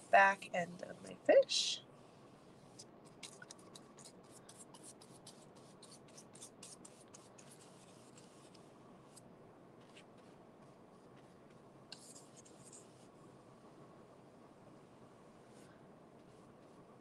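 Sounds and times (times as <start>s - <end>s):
paintbrush strokes on cardboard: 2.0s - 13.2s, 15.3s - 17.0s.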